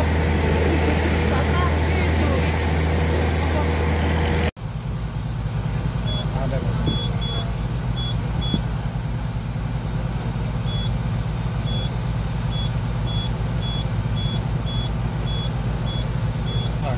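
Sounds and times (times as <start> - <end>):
diesel engine idling: 0.0 - 16.9.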